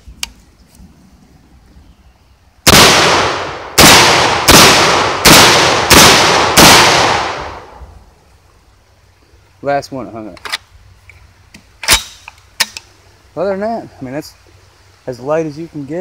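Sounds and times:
shotgun shots with echo: 0:02.7 - 0:07.8.

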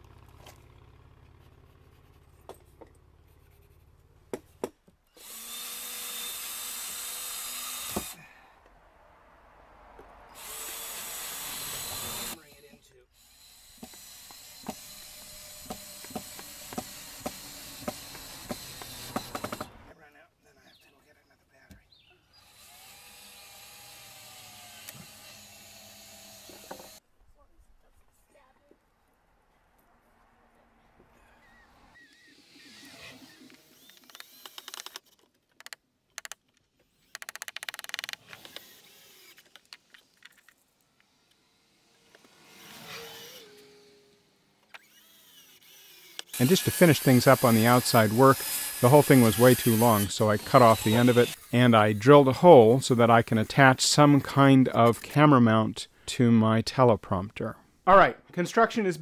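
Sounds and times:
cordless drill running: 0:05.1 - 0:08.2, 0:10.4 - 0:12.5, 0:13.2 - 0:19.9, 0:22.4 - 0:27.0, 0:32.0 - 0:35.0, 0:36.9 - 0:39.6, 0:44.7 - 0:51.7
hand tool rapid clicking: 0:37.0 - 0:39.9.

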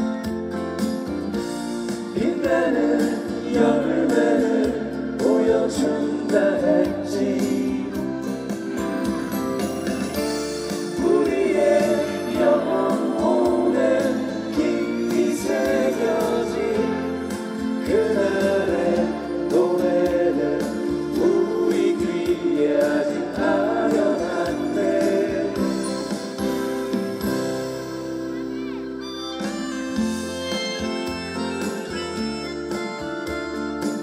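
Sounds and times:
several voices singing together: 0:02.1 - 0:08.3, 0:10.8 - 0:26.2.

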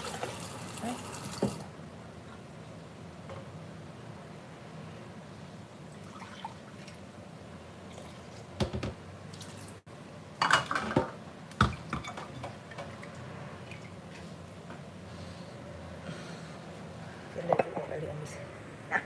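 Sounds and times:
pot knocking against sink: 0:08.6 - 0:09.0.

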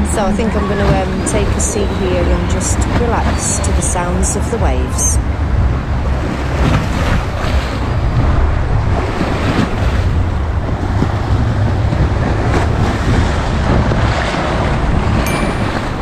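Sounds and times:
wind on microphone: 0:00.0 - 0:16.0
small waves washing on shore: 0:00.8 - 0:16.0.

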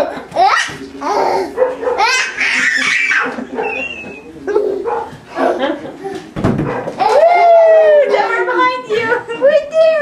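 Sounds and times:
toddler squealing and giggling: 0:00.4 - 0:04.2.

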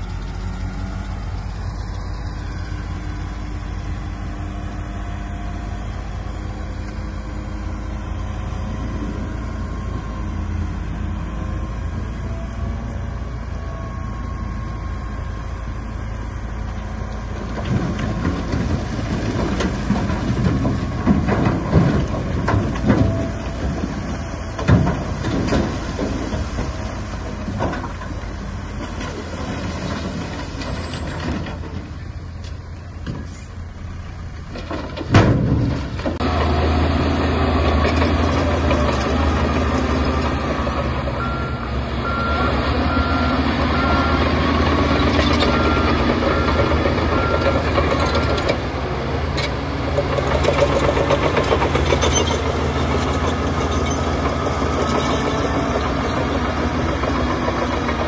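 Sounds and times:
heavy diesel engines working: 0:00.0 - 0:58.0
truck reversing alarm beeping: 0:08.1 - 0:17.0, 0:40.4 - 0:48.4.

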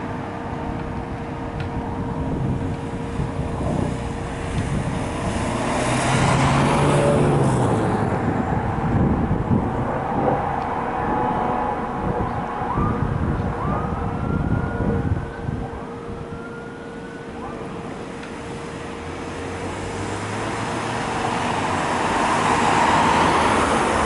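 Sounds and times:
road traffic: 0:00.0 - 0:24.0
vehicle passing close by: 0:03.2 - 0:14.6, 0:18.8 - 0:24.0.

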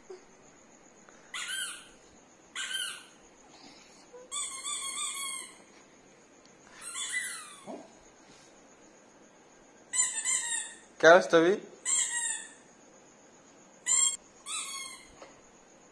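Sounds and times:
dog whining: 0:02.6 - 0:05.7, 0:06.7 - 0:08.0.

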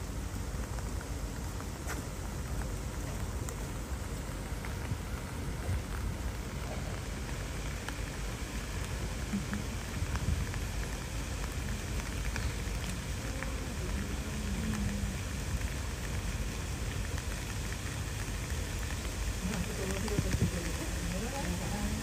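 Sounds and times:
steady hiss: 0:00.0 - 0:22.0.

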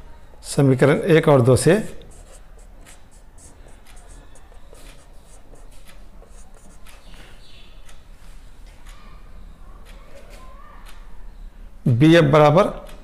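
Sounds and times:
marker scratching on whiteboard: 0:01.6 - 0:07.5
marker squeak: 0:02.0 - 0:07.7.

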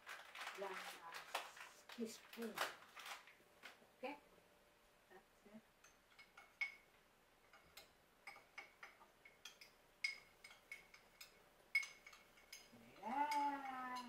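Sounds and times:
spoon clinking against ceramic bowl: 0:05.8 - 0:14.0.

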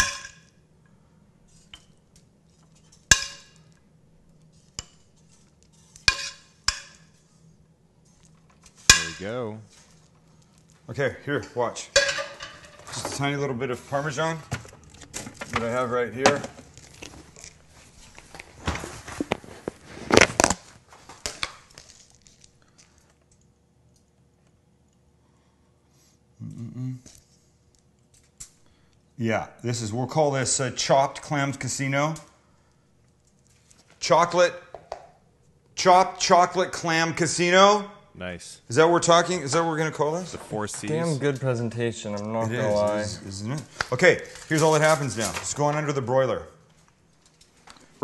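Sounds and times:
scraping and crinkling of food: 0:12.5 - 0:23.3, 0:42.8 - 0:45.9.

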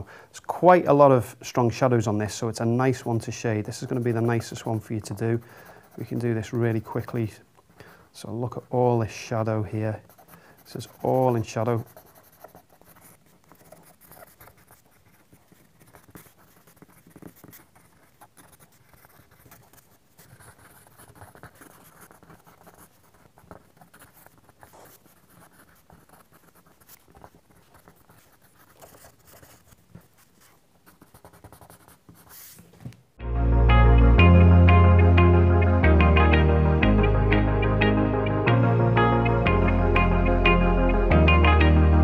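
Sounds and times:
pencil shading on paper: 0:02.8 - 0:07.3, 0:09.7 - 0:32.6.

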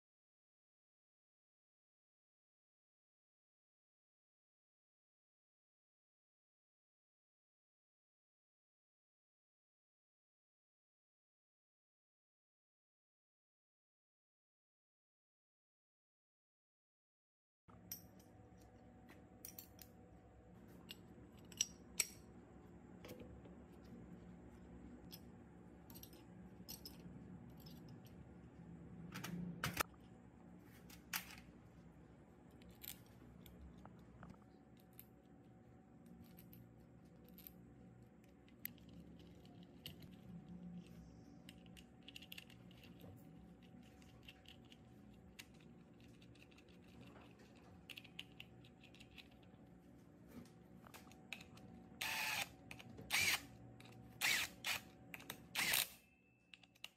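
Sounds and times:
faint steady hum: 0:17.7 - 0:56.9
metal parts clicking and clinking: 0:19.4 - 0:20.0, 0:20.8 - 0:22.3, 0:25.0 - 0:28.2, 0:32.5 - 0:34.0, 0:36.0 - 0:37.6, 0:38.2 - 0:49.6, 0:52.6 - 0:56.9.

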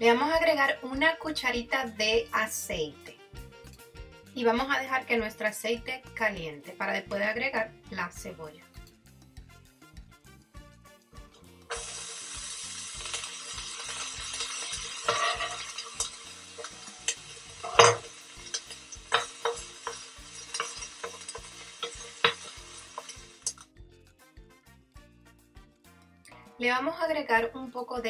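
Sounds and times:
onions sizzling in hot oil: 0:11.7 - 0:23.7
wooden spoon scraping a pan: 0:14.4 - 0:23.3.

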